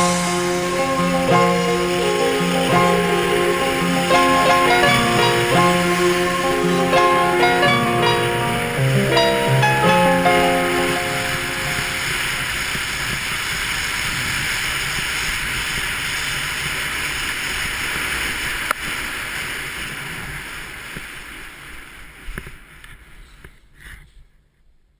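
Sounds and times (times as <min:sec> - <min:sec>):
wind rushing: 0:00.0 - 0:13.7
skis sliding over snow: 0:00.0 - 0:24.0.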